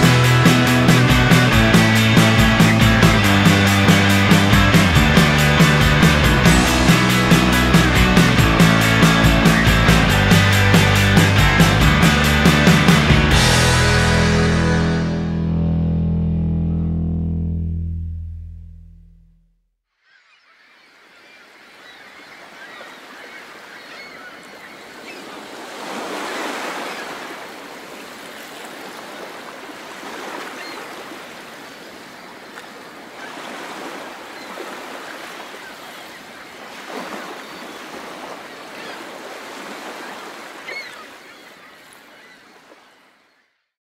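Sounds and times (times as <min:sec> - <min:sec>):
faint seabird calls: 0:20.0 - 0:25.5, 0:30.2 - 0:43.6
surf breaking on a beach: 0:21.7 - 0:43.0.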